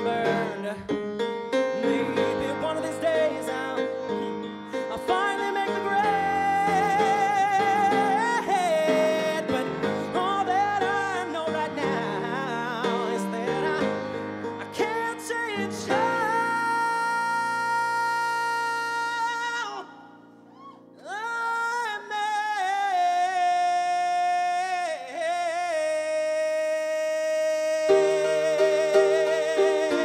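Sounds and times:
grand piano chords: 0.0 - 23.6, 27.0 - 30.0
man singing wordless notes: 0.0 - 30.0.

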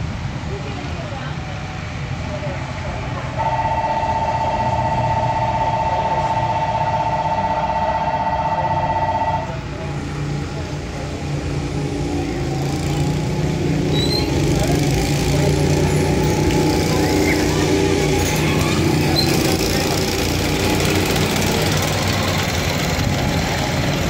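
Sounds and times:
go-kart engines running: 0.0 - 24.0
loud buzzer tone: 3.4 - 9.7.

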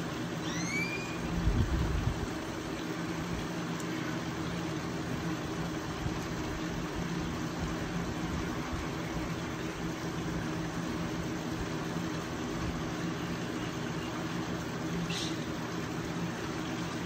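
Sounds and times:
mechanical hum: 0.0 - 17.0
low held tones: 0.4 - 1.4.

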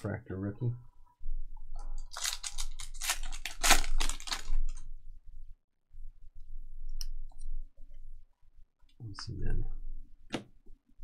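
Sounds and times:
foil wrapper crinkling and tearing: 2.0 - 4.8.

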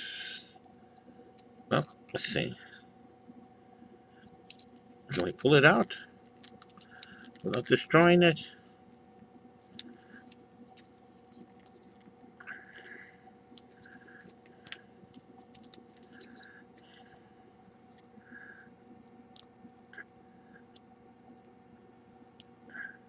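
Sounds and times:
faint hum: 0.0 - 23.0
plastic toy parts clicking: 6.4 - 8.1.

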